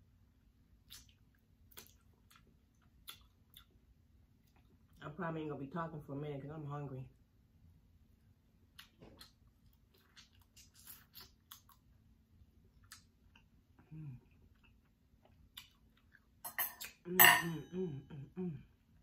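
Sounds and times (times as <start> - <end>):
wet lip clicks: 0.8 - 3.7
person chewing: 0.8 - 3.8, 8.7 - 17.0
person humming: 17.1 - 18.7.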